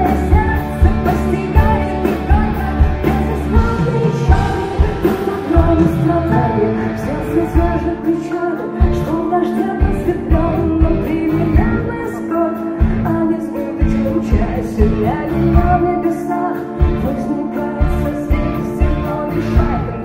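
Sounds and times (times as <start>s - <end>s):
bass and drums beat: 0.0s - 8.1s, 8.8s - 12.0s, 12.8s - 15.9s
woman singing: 0.0s - 20.0s.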